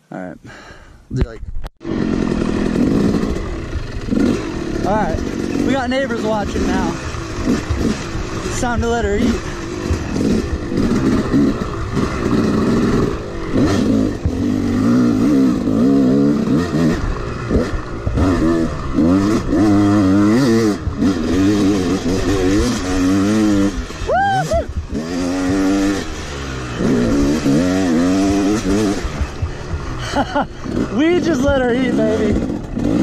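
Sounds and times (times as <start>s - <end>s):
dirt bike engine revving: 1.8s - 33.0s.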